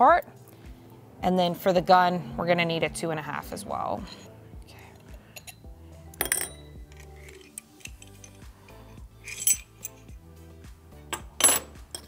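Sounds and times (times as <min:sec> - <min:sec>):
background music: 0:00.0 - 0:12.0
metal clinks of screws and wrench: 0:05.0 - 0:10.1.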